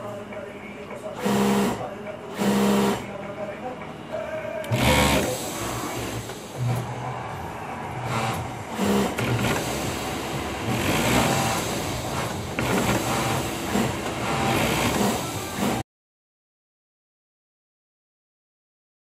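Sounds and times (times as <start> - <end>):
industrial sewing machine running: 1.0 - 3.2, 4.5 - 15.8.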